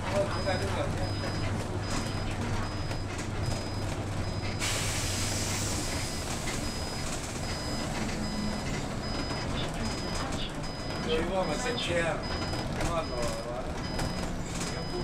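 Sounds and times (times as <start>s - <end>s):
bus engine running: 0.0s - 15.0s
compressed air hiss: 4.6s - 5.9s.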